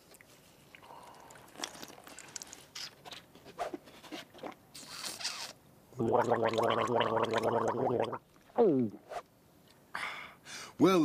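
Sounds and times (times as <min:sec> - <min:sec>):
man slurping and gulping liquid: 0:00.2 - 0:02.7, 0:06.0 - 0:08.6
voiced gargle: 0:06.0 - 0:08.2.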